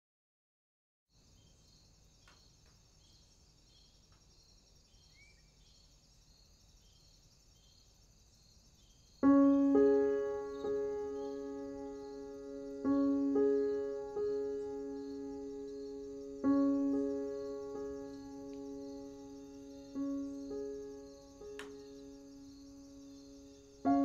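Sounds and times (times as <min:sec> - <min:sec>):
insects chirping: 0:01.1 - 0:24.0
slow piano music: 0:09.2 - 0:24.0.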